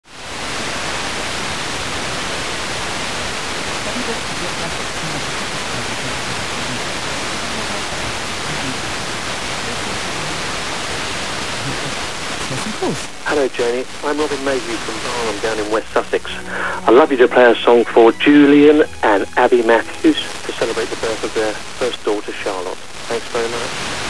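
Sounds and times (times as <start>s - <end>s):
radio static hiss: 0.1s - 24.0s
faint radio voice: 3.9s - 9.0s, 11.6s - 23.8s.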